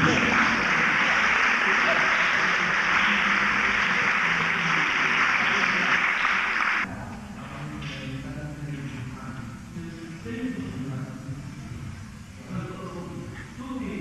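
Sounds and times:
audience applauding: 0.0 - 6.9
faint voices in a room: 0.0 - 14.0.

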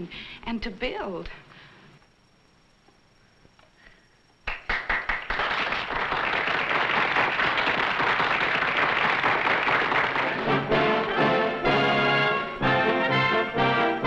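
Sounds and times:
audience applause: 4.5 - 11.6.

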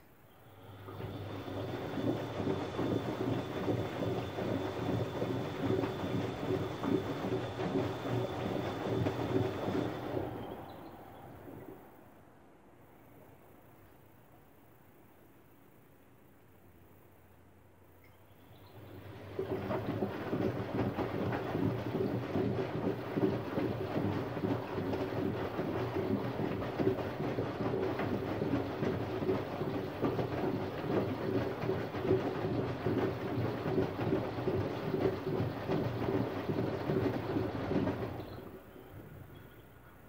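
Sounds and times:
washing machine motor humming: 0.3 - 12.2, 18.4 - 40.0
laundry tumbling in drum: 0.8 - 10.8, 18.7 - 39.3.

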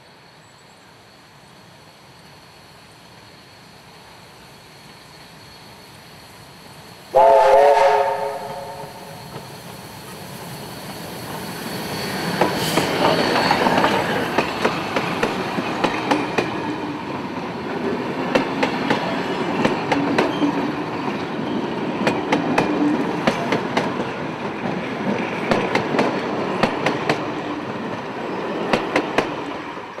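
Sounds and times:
locomotive passing: 3.8 - 30.0
steam locomotive whistle: 7.1 - 9.4
train wheels clicking on rail joints: 8.1 - 30.0.

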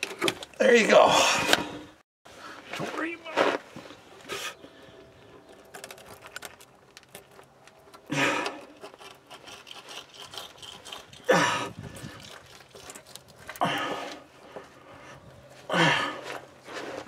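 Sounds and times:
rubbing and scraping on metal: 8.5 - 13.5.

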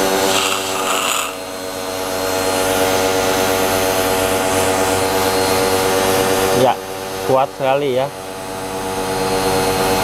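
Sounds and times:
water jet hissing: 0.0 - 1.6
pressure washer pump humming: 0.0 - 10.0.

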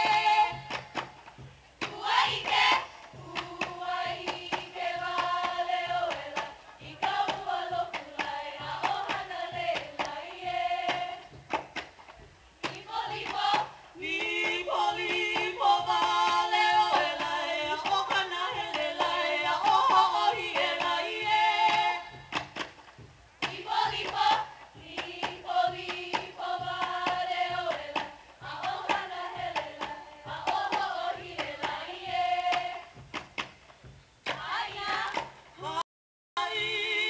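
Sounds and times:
group chanting: 0.0 - 0.8, 1.9 - 11.3, 23.5 - 32.9, 34.4 - 35.8
sharp percussive beats: 0.0 - 35.8.

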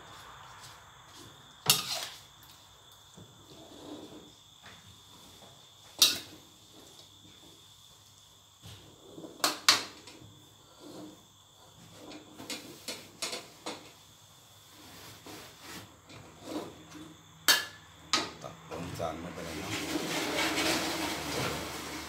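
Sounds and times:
metal spatula scraping wok: 1.6 - 2.2, 6.0 - 6.4, 16.2 - 17.1, 19.4 - 22.0.

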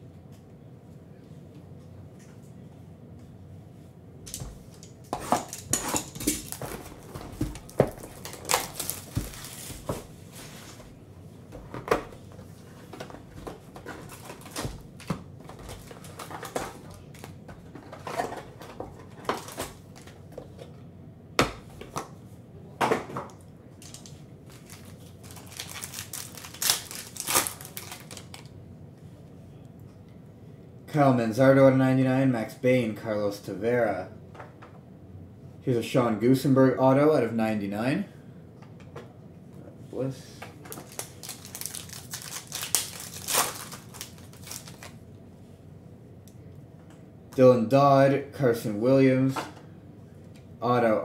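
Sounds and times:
plastic wrap and cardboard crinkling: 5.3 - 10.8, 12.7 - 20.1, 23.8 - 28.5, 40.6 - 45.0.

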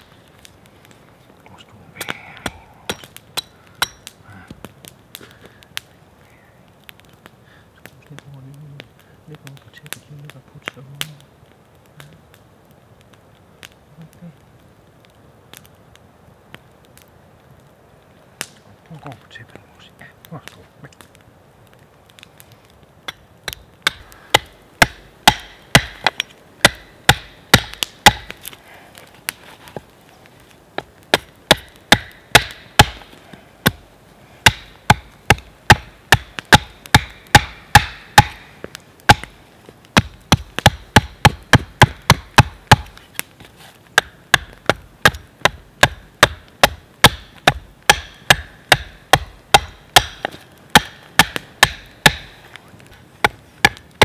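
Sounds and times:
axe chopping wood: 23.1 - 28.5, 30.8 - 33.8, 34.4 - 38.4, 39.1 - 39.3, 40.0 - 43.0, 44.0 - 52.3, 53.2 - 54.0.

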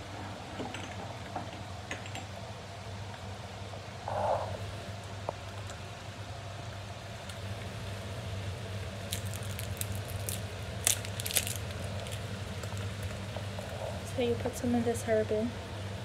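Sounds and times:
low hum: 2.6 - 16.0
crackles and pops: 9.0 - 14.0.

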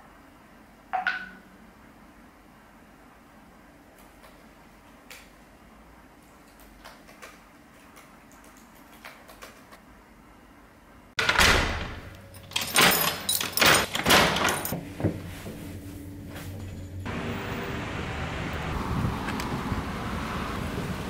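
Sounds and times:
laptop keys typing: 6.2 - 9.8
door lock and handle clacking: 11.2 - 14.8
keys jangling: 12.2 - 14.8.

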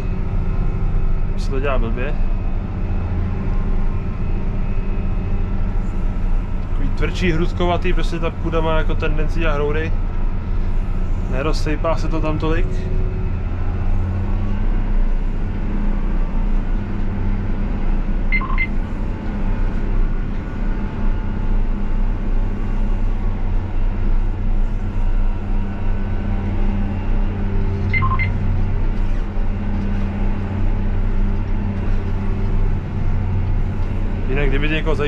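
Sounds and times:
tractor diesel engine drone: 0.0 - 35.0
short double beeps: 18.4 - 18.7, 27.9 - 28.3.

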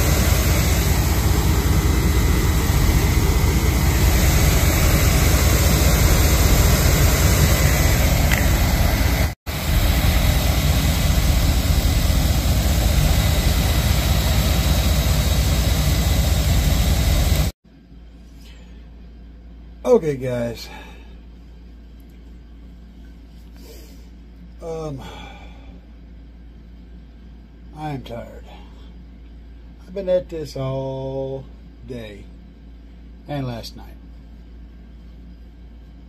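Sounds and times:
vehicle engine rumbling: 0.0 - 17.6.

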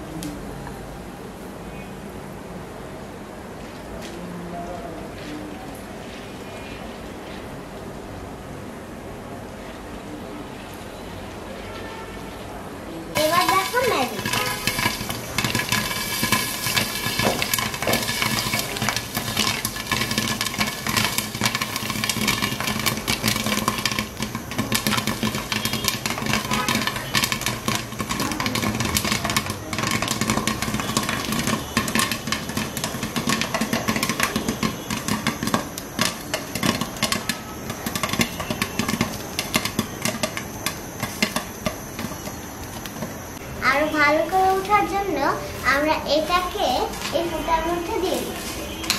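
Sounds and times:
oil sizzling: 13.1 - 48.9
popcorn popping: 13.1 - 48.9.

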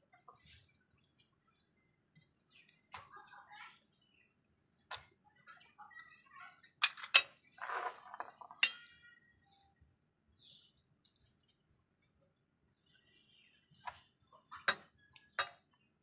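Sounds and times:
knife clinking against shells: 8.6 - 9.0.

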